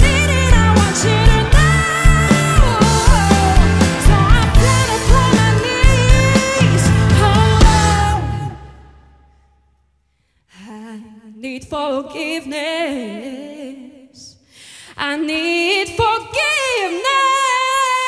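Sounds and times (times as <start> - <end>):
woman singing with vibrato: 0.0 - 9.2, 10.5 - 14.3, 14.9 - 18.0.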